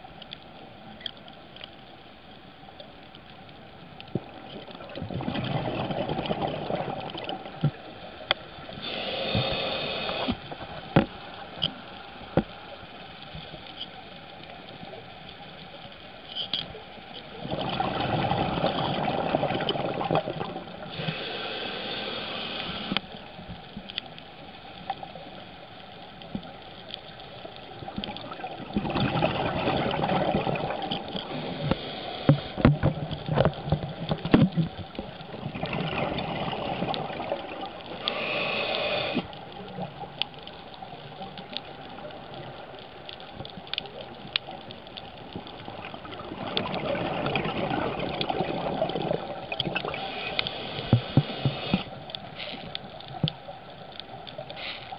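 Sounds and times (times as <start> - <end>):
diver breathing through regulator: 8.8 - 10.4, 20.9 - 23.0, 31.3 - 32.7, 38.0 - 39.3.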